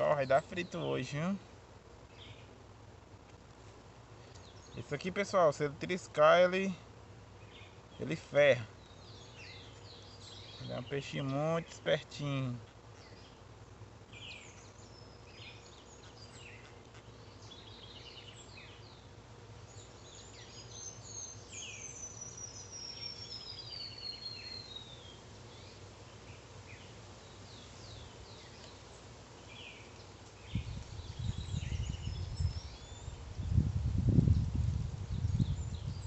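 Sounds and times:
steady low hum: 0:00.0 - 0:36.0
birds chirping and whistling: 0:07.4 - 0:11.8, 0:19.7 - 0:28.8, 0:29.5 - 0:33.6, 0:35.1 - 0:36.0
low rumble on microphone: 0:30.4 - 0:36.0.

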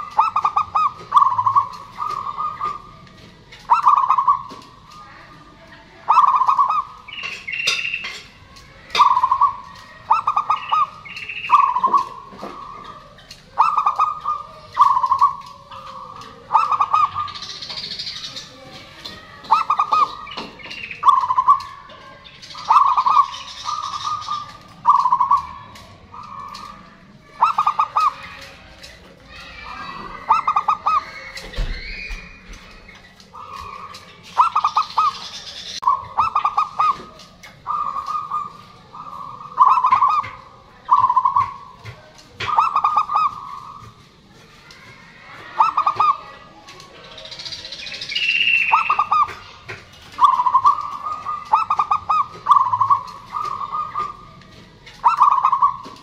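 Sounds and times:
dove cooing: 0:00.0 - 0:56.0.

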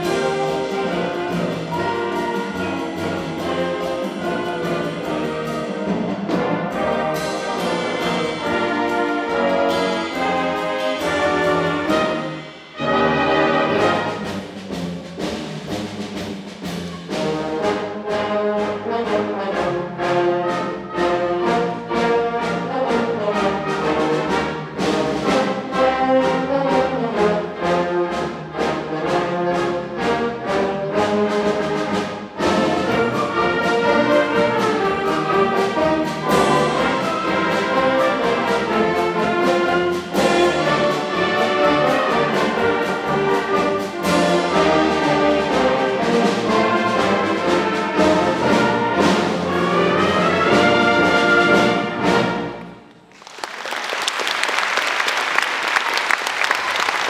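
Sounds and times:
concert band playing: 0:00.0 - 0:57.0
audience applause: 0:53.0 - 0:57.0.

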